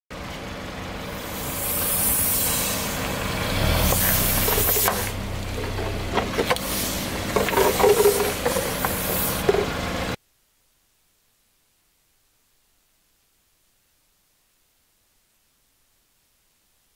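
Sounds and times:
car engine idling: 0.1 - 10.2
air hissing from toy: 1.0 - 5.2, 6.5 - 9.7.

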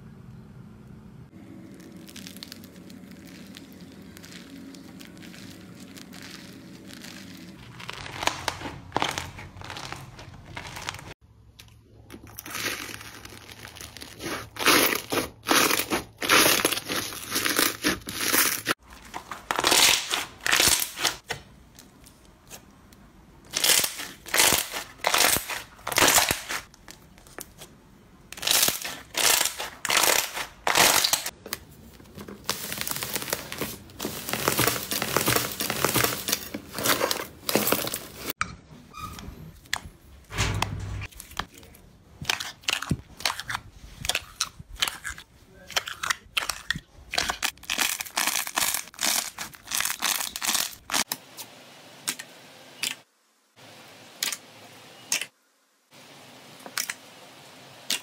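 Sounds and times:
slime popping and crackling: 1.5 - 11.1, 12.2 - 21.3, 23.5 - 27.6, 28.3 - 38.4, 42.2 - 51.1.

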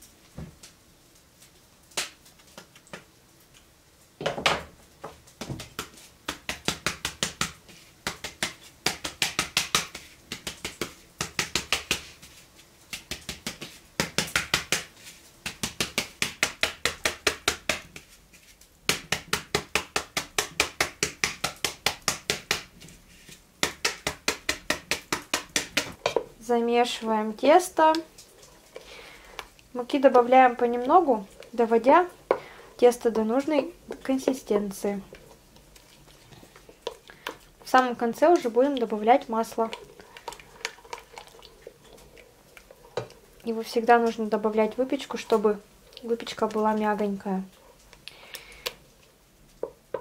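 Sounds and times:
sieve tapped by hand: 4.2 - 18.2, 18.9 - 22.8, 23.6 - 26.3, 36.6 - 43.2, 49.6 - 50.0.

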